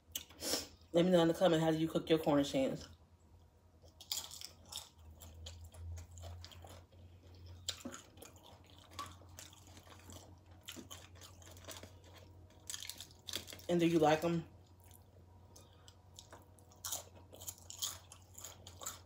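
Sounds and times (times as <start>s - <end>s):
chewing crunchy chips: 3.8s - 19.0s.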